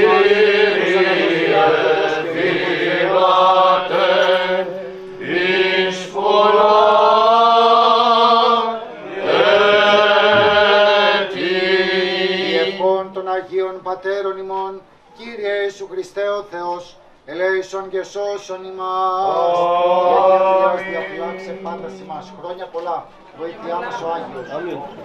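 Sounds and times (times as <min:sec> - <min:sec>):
man chanting: 0:17.4 - 0:22.8.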